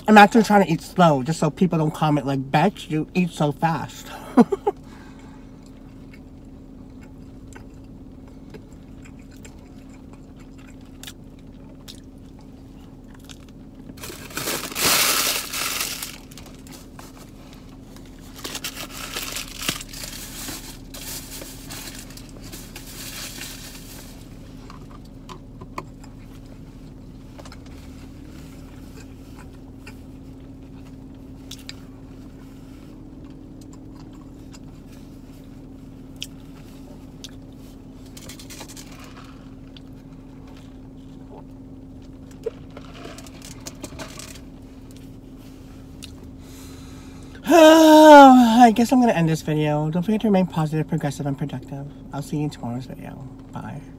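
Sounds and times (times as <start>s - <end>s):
steady hum: 0.0s - 53.9s
crunchy chewing: 5.6s - 14.5s
paper wrapper rustling: 14.0s - 16.8s, 18.2s - 24.1s.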